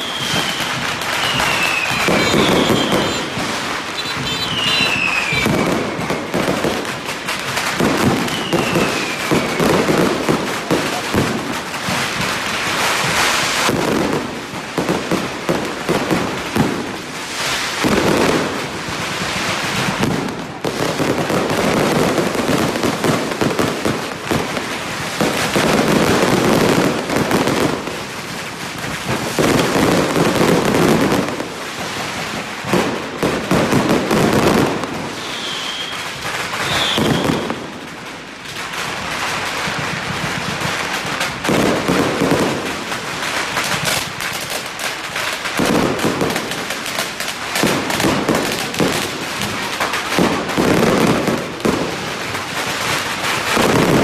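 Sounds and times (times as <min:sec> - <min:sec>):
falling whistle: 0:00.0 - 0:06.3, 0:08.2 - 0:09.8, 0:35.1 - 0:37.6
firecrackers crackling: 0:00.0 - 0:54.0.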